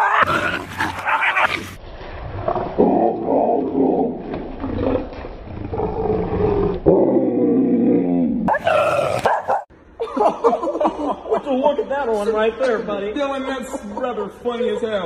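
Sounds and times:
dog snarling and growling: 0:00.0 - 0:01.8, 0:04.6 - 0:09.7.

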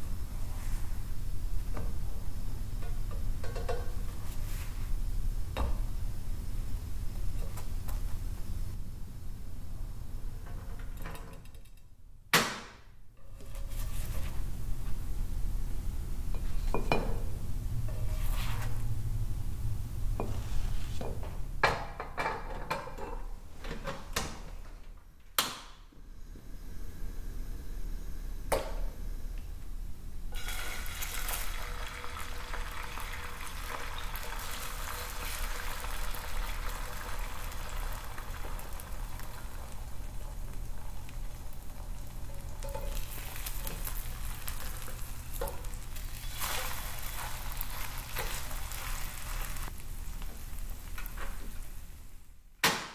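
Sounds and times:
food sizzling in a pan: 0:30.3 - 0:52.2.

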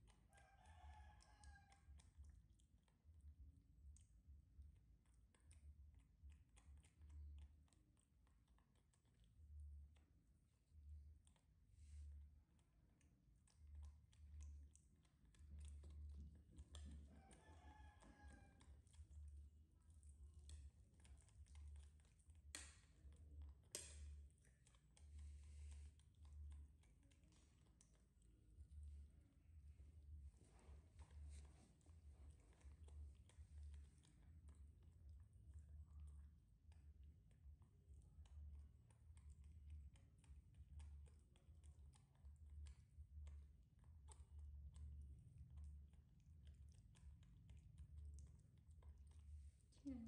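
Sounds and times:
faint clicks and ticks: 0:00.0 - 0:50.0
low steady hum: 0:00.0 - 0:50.0
monkey mouth clicks: 0:20.4 - 0:25.2.

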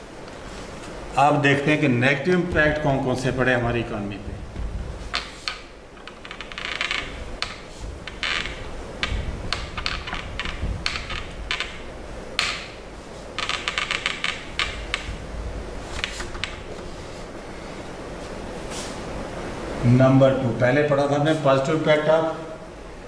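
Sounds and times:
duster rubbing on whiteboard: 0:07.0 - 0:12.0.

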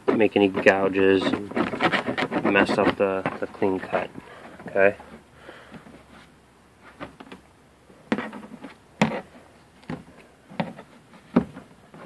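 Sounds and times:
knife scraping plastic: 0:00.0 - 0:05.2, 0:08.1 - 0:09.4.

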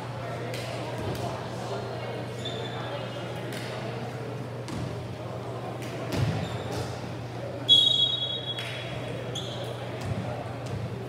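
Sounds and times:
background chatter: 0:00.0 - 0:11.0
referee's whistle blast: 0:07.7 - 0:08.6.

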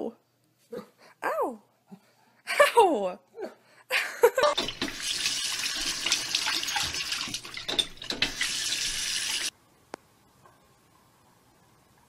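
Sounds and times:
tap water running: 0:04.5 - 0:09.5.

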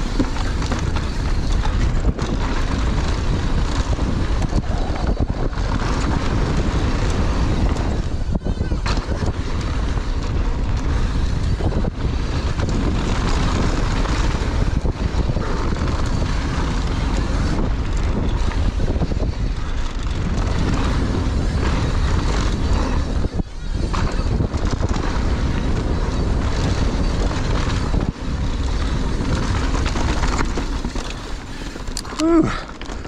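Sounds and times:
bike knocking over bumps: 0:00.0 - 0:04.6
wind buffeting microphone: 0:00.0 - 0:33.0.

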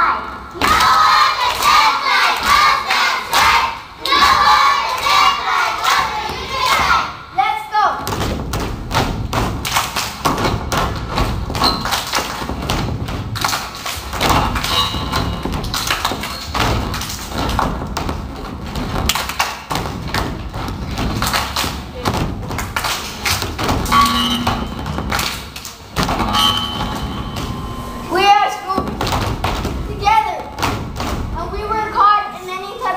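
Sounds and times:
people clapping: 0:00.6 - 0:07.0, 0:08.6 - 0:26.0
stomping on wooden stage: 0:08.0 - 0:23.9.

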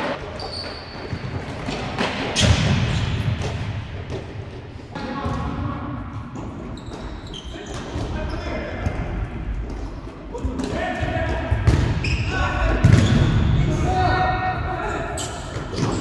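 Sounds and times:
shoes squeaking on floor: 0:00.0 - 0:02.0, 0:06.4 - 0:08.6, 0:12.0 - 0:12.4, 0:15.2 - 0:16.0.

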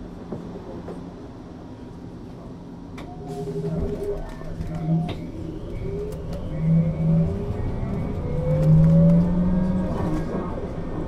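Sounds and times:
low hum: 0:03.0 - 0:11.0.

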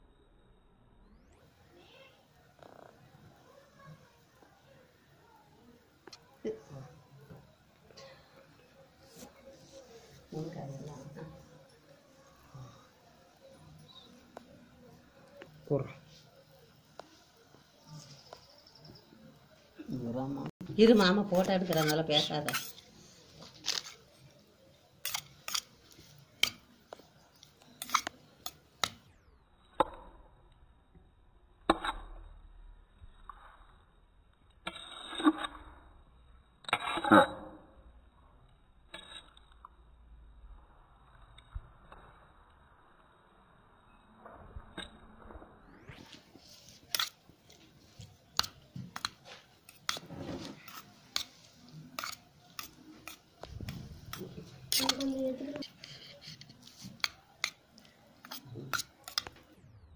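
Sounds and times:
fruit squishing: 0:21.6 - 0:29.1.

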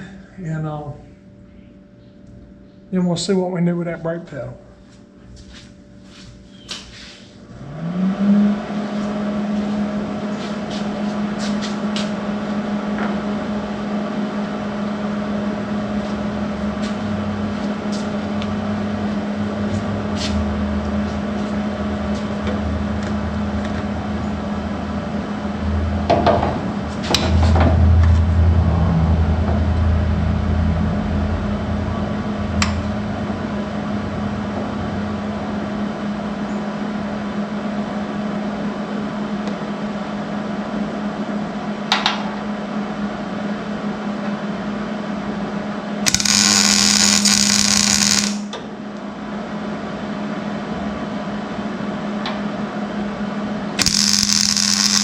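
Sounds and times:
steady shop hum: 0:00.0 - 0:55.0
electric welding arc: 0:46.0 - 0:48.5, 0:53.8 - 0:55.0.

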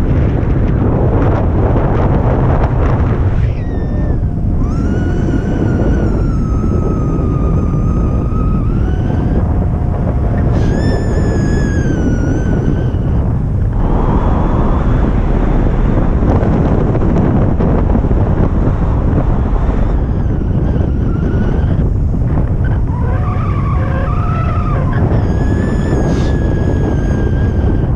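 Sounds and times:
wind buffeting the microphone: 0:00.0 - 0:27.9
wavering whistling tones: 0:03.3 - 0:15.8, 0:19.6 - 0:27.9.

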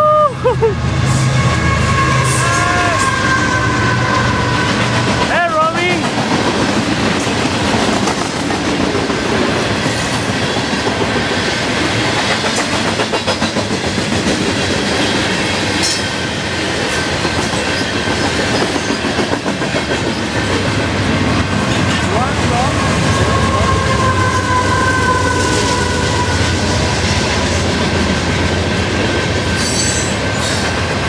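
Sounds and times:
freight train rolling past: 0:00.0 - 0:31.0.

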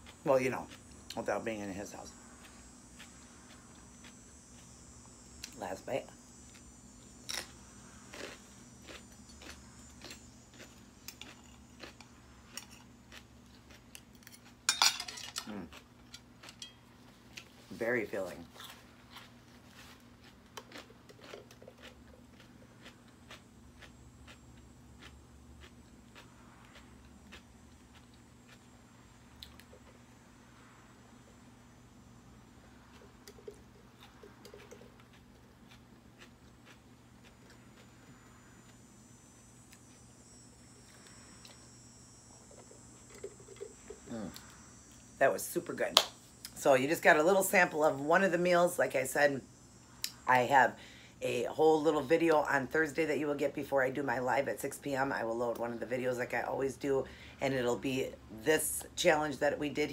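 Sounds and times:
faint steady hum: 0:00.0 - 0:59.9
chewing clicks: 0:08.1 - 0:14.6, 0:20.2 - 0:28.7, 0:32.9 - 0:37.9
fork clinking on plate: 0:14.7 - 0:15.4.

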